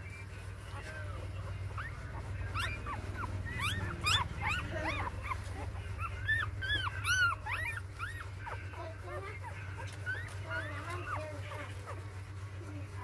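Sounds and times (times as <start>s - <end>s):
puppies whimpering and squeaking: 0.0s - 13.0s
steady low hum: 0.0s - 13.0s.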